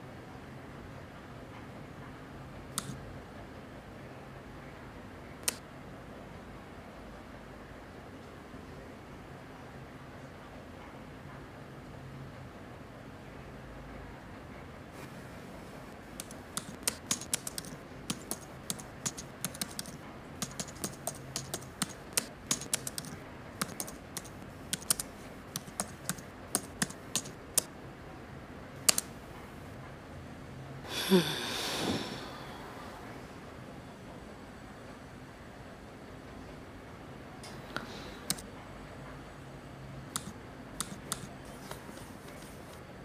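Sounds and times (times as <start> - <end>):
laptop keyboard typing: 2.7 - 3.0, 15.8 - 27.7, 28.8 - 29.4, 38.2 - 38.4, 40.1 - 42.8
breathy sigh: 30.8 - 33.2.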